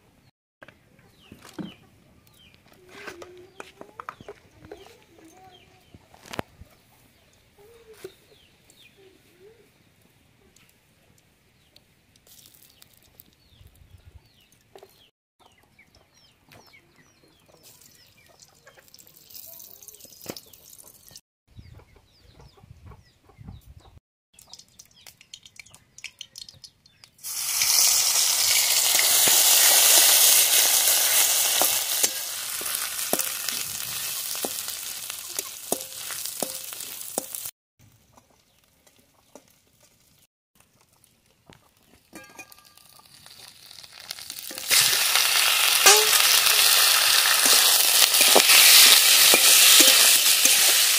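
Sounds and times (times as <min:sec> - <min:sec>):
food sizzling in hot oil: 0:18.9 - 0:21.2, 0:27.2 - 0:37.5, 0:42.1 - 0:50.9
metal spatula scraping wok: 0:42.2 - 0:50.9.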